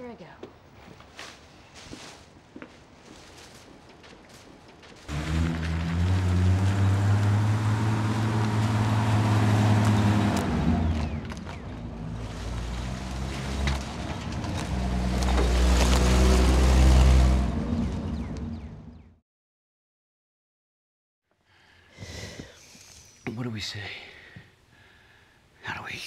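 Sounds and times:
suv engine driving on dirt: 4.9 - 19.0.

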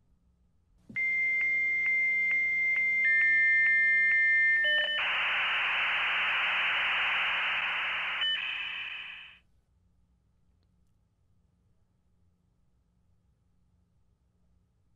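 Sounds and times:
lower modem tone: 0.9 - 9.4
modem answer tone: 1.0 - 9.4
harsh hiss of data noise: 5.0 - 9.4.

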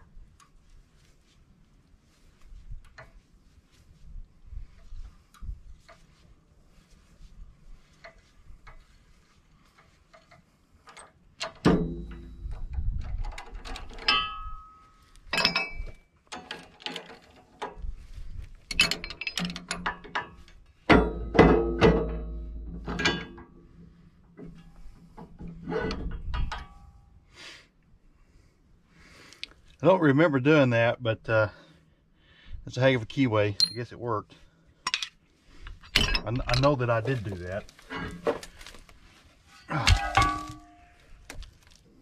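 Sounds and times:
heavy metal clunks: 11.4 - 12.6, 20.9 - 23.6, 39.7 - 40.9.

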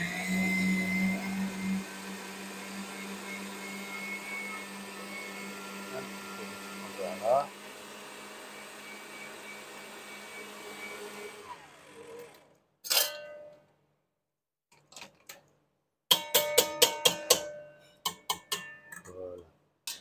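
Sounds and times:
stand mixer motor running: 0.0 - 12.5
whisk tapping metal bowl: 16.1 - 19.1.

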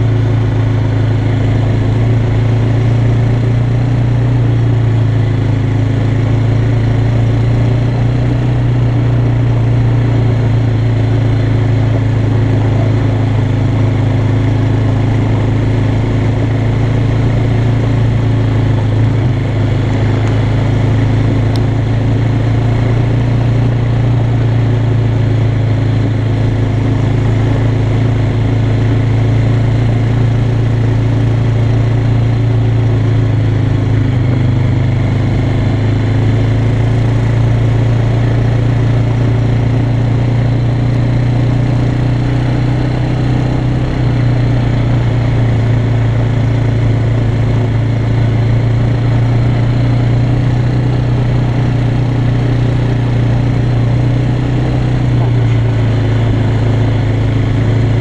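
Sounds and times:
quad engine running: 0.0 - 58.0.

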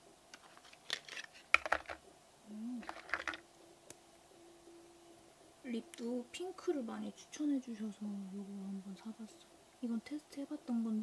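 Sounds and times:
packaging clicks and rustles: 0.3 - 2.0, 2.8 - 3.4.

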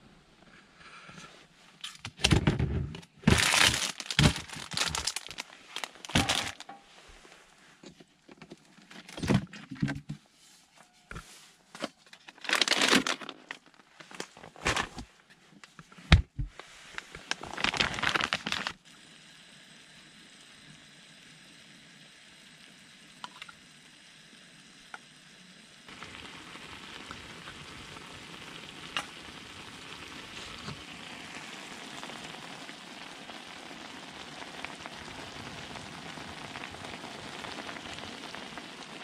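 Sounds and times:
faint steady hiss: 2.8 - 39.0
plastic packaging crinkling: 3.2 - 6.8, 12.0 - 15.1, 16.9 - 18.8.

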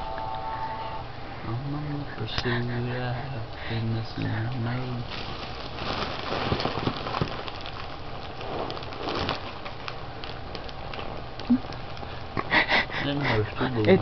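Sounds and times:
foil balloon crinkling: 4.6 - 12.4.

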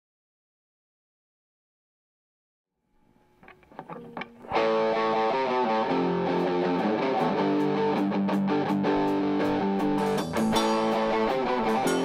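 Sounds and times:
distorted electric guitar: 3.1 - 12.0
quiet picked guitar notes: 3.4 - 12.0
rock band playing: 4.5 - 12.0.

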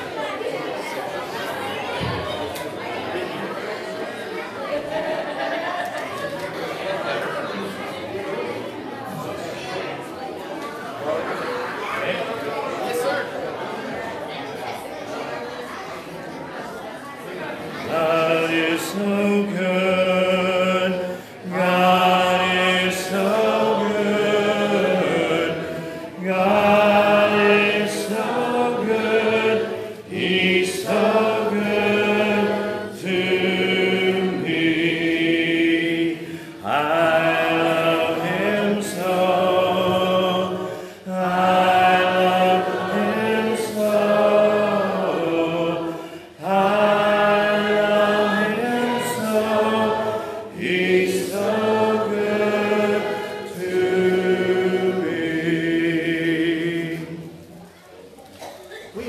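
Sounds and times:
congregation singing a hymn: 0.0 - 5.8, 17.1 - 57.8.

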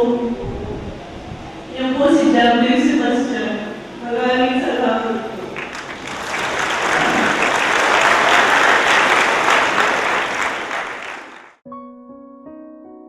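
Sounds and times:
audience applauding: 5.4 - 11.6
soft piano music: 11.6 - 13.0.

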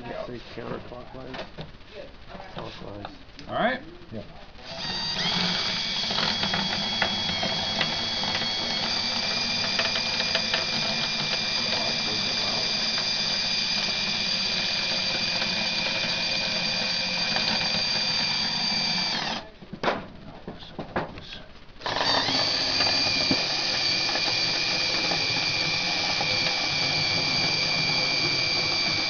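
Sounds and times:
electric router whining: 4.6 - 19.5, 21.3 - 29.0.

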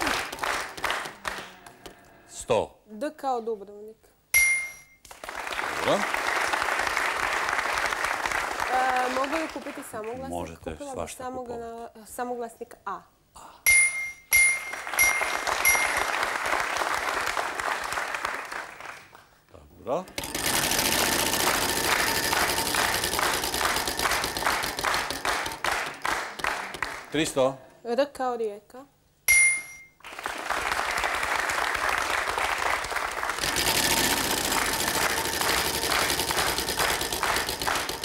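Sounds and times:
studio audience applause: 0.0 - 2.0, 5.1 - 10.7, 14.6 - 19.4, 20.2 - 27.6, 30.0 - 38.0
game show chime ding: 4.4 - 5.0, 13.7 - 16.1, 29.3 - 30.0.

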